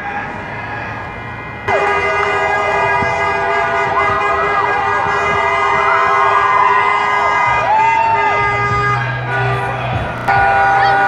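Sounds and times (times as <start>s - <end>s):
street traffic: 0.0s - 11.0s
crowd shouting: 1.7s - 11.0s
vehicle horn long blast: 1.7s - 11.0s.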